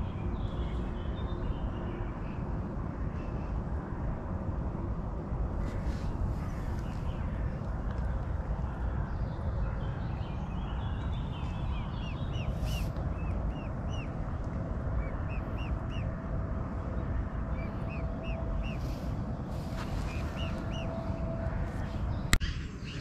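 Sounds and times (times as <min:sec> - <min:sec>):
steady low rumble: 0:00.0 - 0:23.0
bird chirping: 0:09.2 - 0:14.2, 0:15.0 - 0:16.1, 0:17.5 - 0:23.0.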